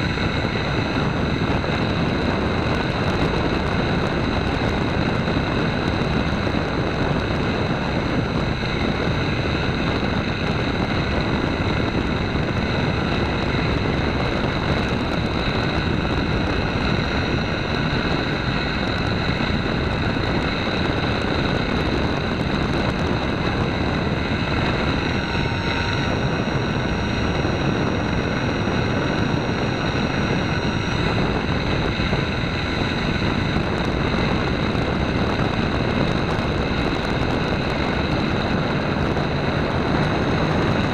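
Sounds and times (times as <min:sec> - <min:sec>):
model airplane motor whine: 0:00.0 - 0:40.9
rush of air: 0:00.0 - 0:40.9.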